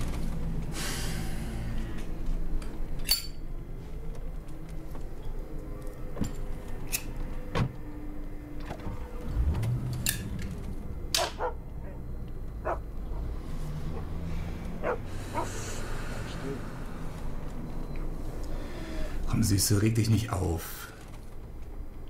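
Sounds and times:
low hum: 0:00.0 - 0:20.3
dog barking: 0:11.2 - 0:13.3, 0:14.8 - 0:15.6.

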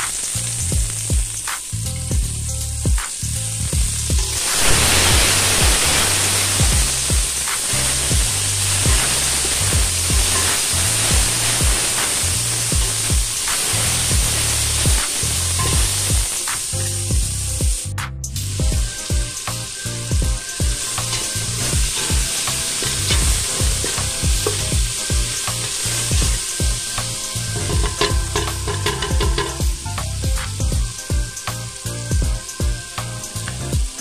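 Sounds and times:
vegetables sizzling in hot oil: 0:00.0 - 0:34.0.

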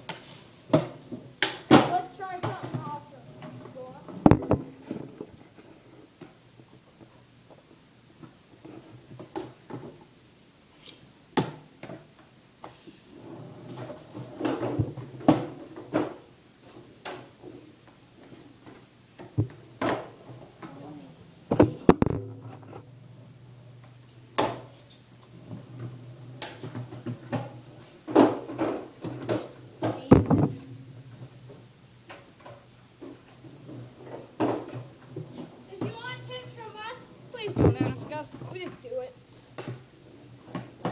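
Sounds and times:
skateboard clacks and landings: 0:00.0 - 0:05.3, 0:18.6 - 0:20.8, 0:21.5 - 0:22.8, 0:23.8 - 0:36.0
skateboard rolling: 0:00.0 - 0:10.1, 0:11.4 - 0:40.9
faint low hum: 0:00.0 - 0:40.9.

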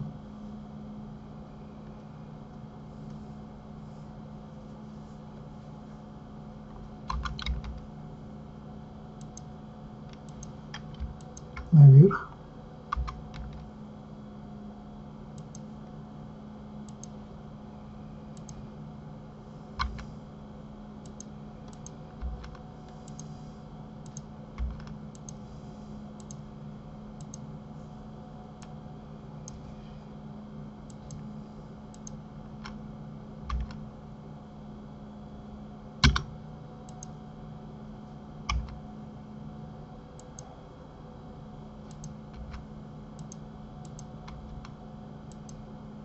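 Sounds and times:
steady low hum: 0:00.0 - 0:46.0
keyboard and mouse clicks: 0:07.0 - 0:07.9, 0:09.2 - 0:09.5, 0:10.1 - 0:13.7, 0:15.4 - 0:15.6, 0:19.8 - 0:20.1, 0:24.0 - 0:25.4, 0:26.2 - 0:26.4, 0:27.2 - 0:27.4, 0:31.9 - 0:32.8, 0:33.5 - 0:33.8, 0:36.0 - 0:36.3, 0:36.9 - 0:37.1, 0:38.5 - 0:38.8, 0:41.8 - 0:42.6, 0:43.2 - 0:45.6.

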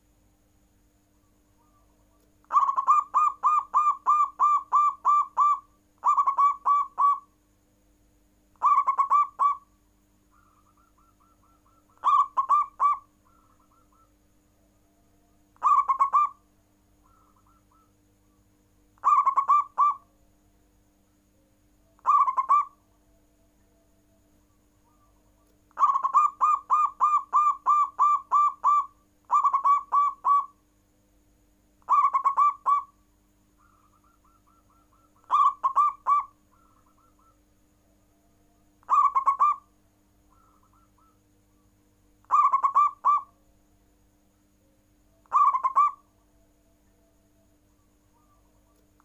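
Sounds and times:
dove cooing: 0:02.5 - 0:07.3, 0:08.6 - 0:09.7, 0:10.3 - 0:14.2, 0:15.6 - 0:16.4, 0:17.0 - 0:18.0, 0:19.0 - 0:20.1, 0:22.0 - 0:22.8, 0:24.8 - 0:30.6, 0:31.9 - 0:33.0, 0:33.6 - 0:37.5, 0:38.8 - 0:39.7, 0:40.3 - 0:41.2, 0:42.2 - 0:43.4, 0:45.2 - 0:46.1.

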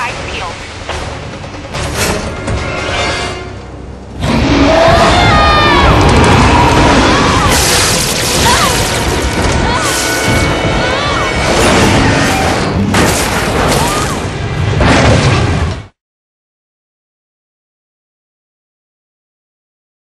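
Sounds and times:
dramatic music: 0:00.0 - 0:15.8
explosions booming: 0:04.2 - 0:15.9.

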